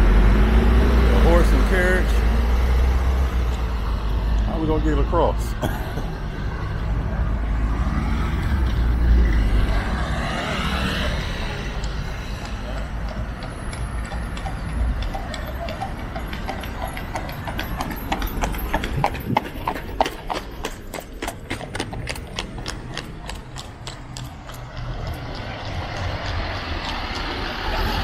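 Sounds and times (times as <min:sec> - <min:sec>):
horse hooves clip-clopping: 0:11.3 - 0:28.0.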